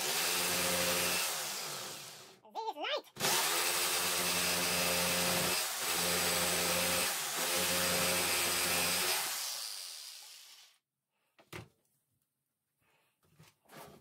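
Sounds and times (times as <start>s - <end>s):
jigsaw cutting wood: 0.0s - 2.4s, 3.2s - 10.8s.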